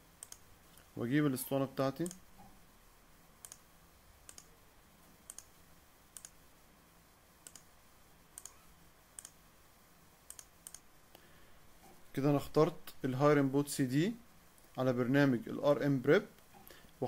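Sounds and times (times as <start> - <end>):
computer mouse clicks: 0.2 - 0.9, 3.4 - 3.6, 4.3 - 4.5, 5.3 - 5.5, 6.2 - 6.4, 7.4 - 7.7, 8.4 - 9.4, 10.3 - 10.9.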